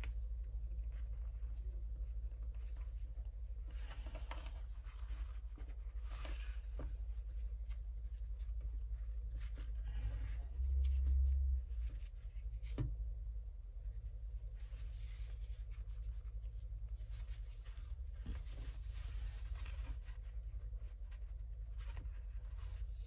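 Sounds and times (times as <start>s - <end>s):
steady low hum: 0.0s - 23.0s
fabric rustling: 13.8s - 23.0s.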